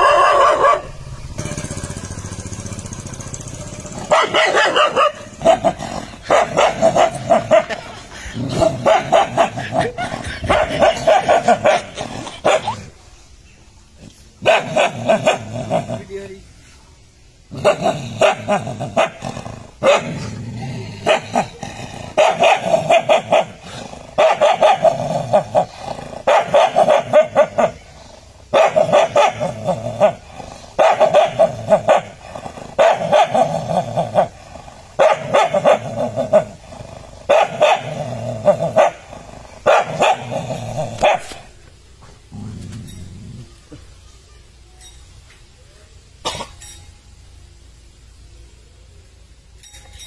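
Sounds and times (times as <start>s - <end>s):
dog barking: 0.0s - 1.0s, 4.0s - 7.8s, 8.8s - 12.8s, 14.4s - 15.5s, 17.6s - 19.2s, 19.8s - 20.2s, 22.2s - 23.6s, 24.2s - 25.4s, 26.3s - 27.8s, 28.5s - 30.2s, 30.8s - 32.1s, 32.8s - 33.5s, 35.0s - 36.5s, 37.3s - 39.0s, 39.6s - 40.4s, 41.0s - 41.4s.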